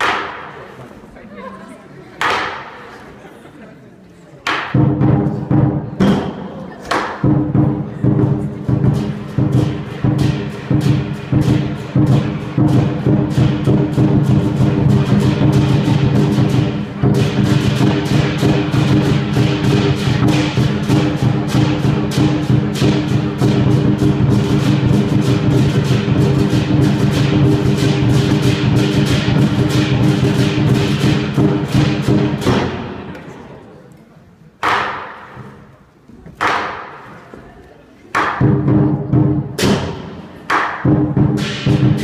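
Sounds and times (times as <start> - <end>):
large drum beating: 4.7 - 33.1, 40.8 - 42.0
cymbals clashing: 7.2 - 33.1, 39.6 - 42.0.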